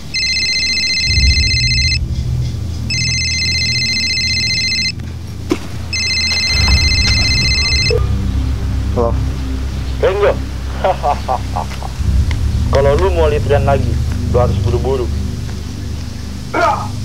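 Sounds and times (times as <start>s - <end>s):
electronic trilling phone ringtone: 0.0s - 2.1s, 2.9s - 5.0s, 5.9s - 8.2s
low background music: 0.0s - 17.0s.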